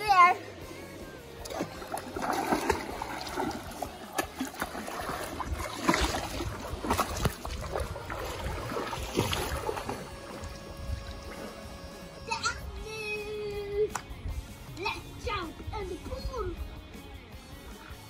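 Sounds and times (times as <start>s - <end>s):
pool water splashing: 0.0s - 14.1s.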